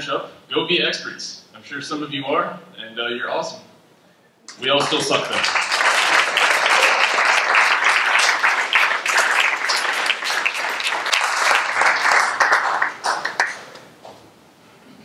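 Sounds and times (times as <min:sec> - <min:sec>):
audience applauding: 0:04.5 - 0:13.9.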